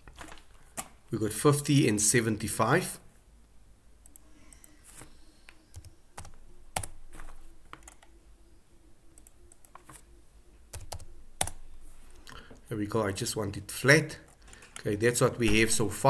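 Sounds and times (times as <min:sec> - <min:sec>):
keyboard and mouse clicks: 0:04.0 - 0:08.2, 0:09.1 - 0:10.1, 0:10.7 - 0:12.4.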